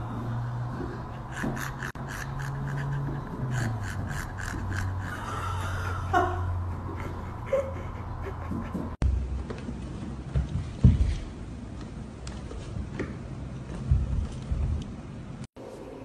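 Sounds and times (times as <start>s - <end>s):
dog panting hard: 0.1s - 5.9s.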